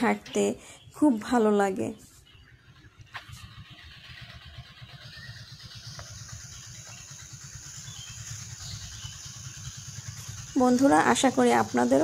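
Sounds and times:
high insect drone: 0:03.7 - 0:12.0.

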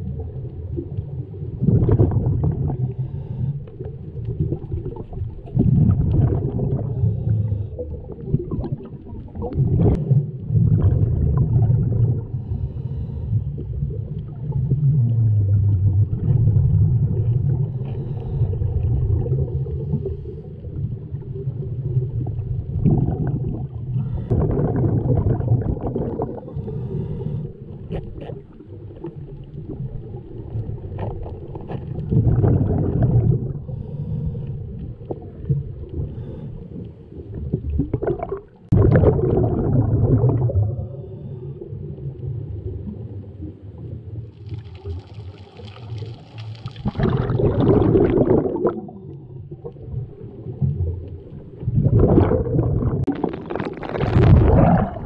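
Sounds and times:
exhaled bubbles rumbling: 0:00.0 - 0:55.0
diver breathing through regulator: 0:02.8 - 0:04.0, 0:06.8 - 0:08.0, 0:12.3 - 0:13.7, 0:17.7 - 0:18.8, 0:26.2 - 0:28.4, 0:33.5 - 0:35.0, 0:36.0 - 0:37.1, 0:40.8 - 0:41.9.

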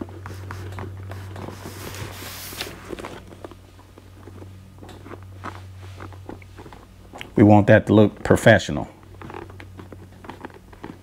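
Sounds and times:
fabric rustling: 0:00.0 - 0:07.1
steady low hum: 0:00.0 - 0:11.0.

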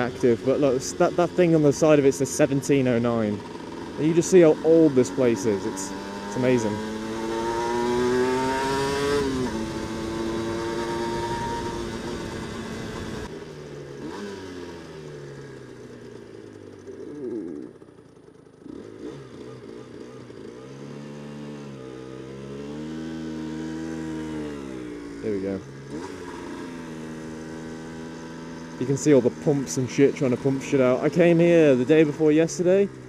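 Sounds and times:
two-stroke motorcycle engine: 0:00.0 - 0:33.0.

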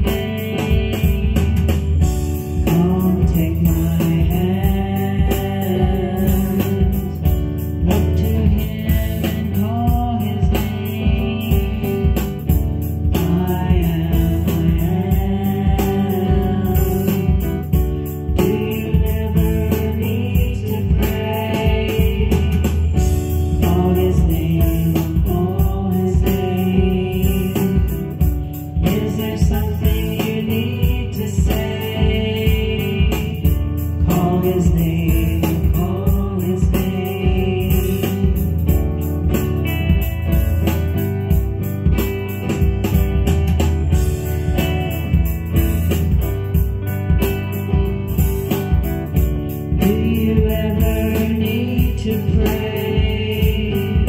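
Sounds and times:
christian song singing over beat: 0:00.0 - 0:54.0.

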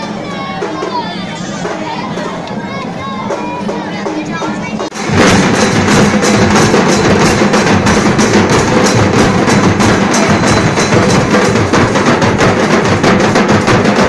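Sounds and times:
group of drummers drumming: 0:03.3 - 0:14.0.

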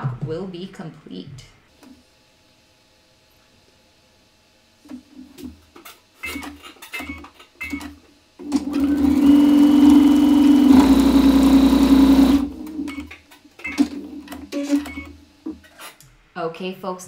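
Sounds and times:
electric sewing machine stitching: 0:08.4 - 0:12.9.

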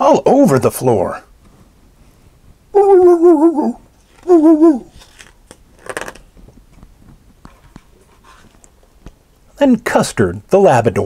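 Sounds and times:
man imitating dog howling: 0:02.7 - 0:05.0.

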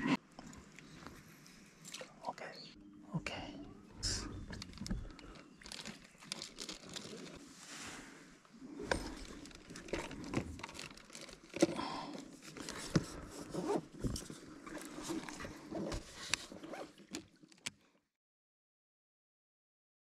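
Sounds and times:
fishing tackle rustling and clicking: 0:04.1 - 0:07.5, 0:08.7 - 0:17.8.

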